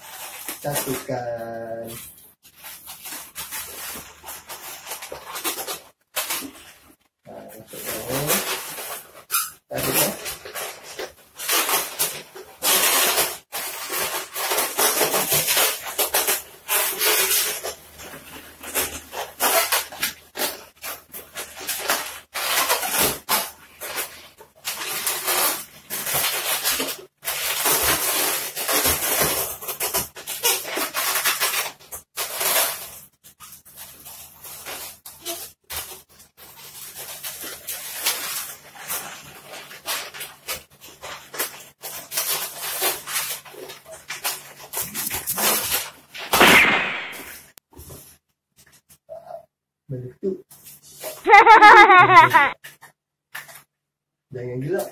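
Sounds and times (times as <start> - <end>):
balloons squeaking and rubbing: 0.0 - 48.2, 50.5 - 52.7.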